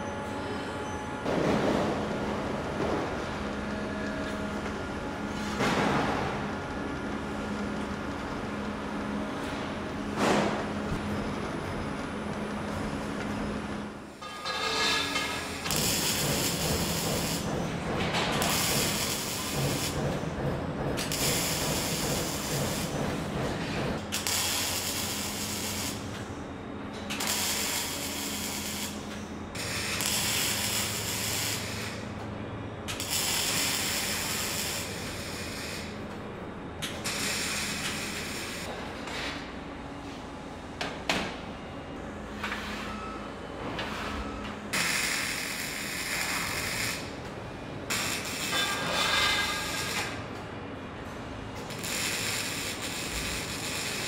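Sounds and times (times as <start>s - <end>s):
welding arc crackling: 15.5s - 17.4s, 18.4s - 20.0s, 21.1s - 22.8s, 24.1s - 26.1s, 27.1s - 29.0s, 29.6s - 32.0s, 32.9s - 35.9s, 44.8s - 47.1s, 47.9s - 50.2s, 51.6s - 54.0s.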